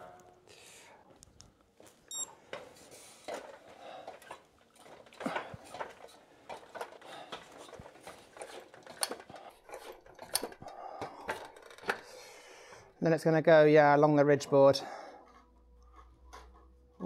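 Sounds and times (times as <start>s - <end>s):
footfalls climbing a ladder: 1.8s - 12.1s.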